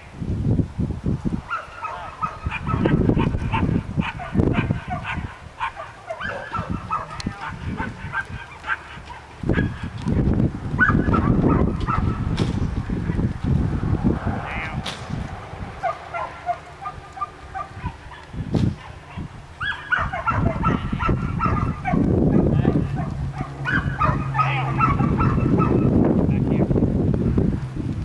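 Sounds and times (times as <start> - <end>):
low uneven rumble: 2.2 - 28.0
geese honking: 15.8 - 18.3.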